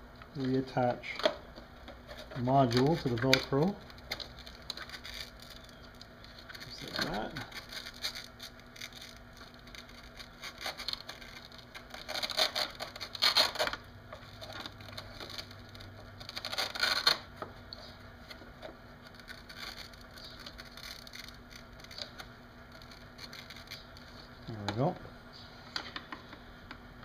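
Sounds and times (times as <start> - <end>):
plastic and wiring rustling: 0.4 - 26.4.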